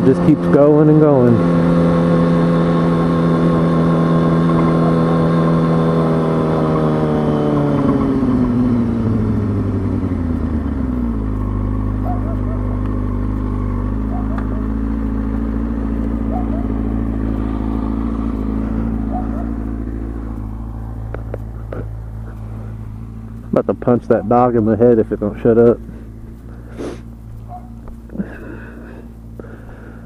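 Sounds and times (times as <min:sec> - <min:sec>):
motorcycle engine revving and idling: 0:00.0 - 0:30.0
dog barking faintly: 0:12.0 - 0:12.8, 0:14.1 - 0:14.8, 0:16.3 - 0:16.8, 0:18.9 - 0:19.7, 0:27.4 - 0:27.8.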